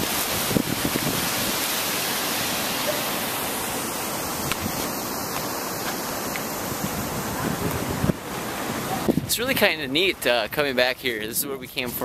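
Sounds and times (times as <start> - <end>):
fountain water cascading: 0.0 - 12.0.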